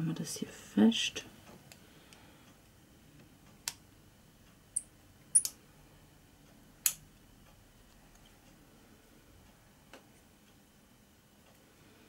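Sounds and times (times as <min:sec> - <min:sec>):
screwdriver light clicks: 0:05.3 - 0:05.6.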